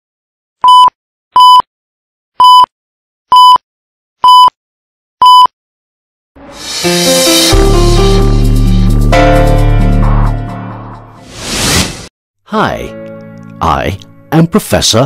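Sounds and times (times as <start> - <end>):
countdown beeps: 0.6 - 1.6, 2.4 - 2.7, 3.4 - 3.6, 4.2 - 4.5, 5.2 - 5.5
music: 6.4 - 11.5, 12.5 - 15.0.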